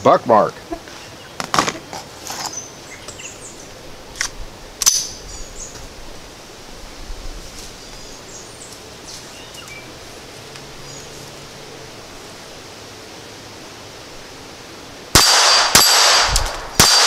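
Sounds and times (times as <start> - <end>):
pistol metallic clicks: 4.2 - 5.1.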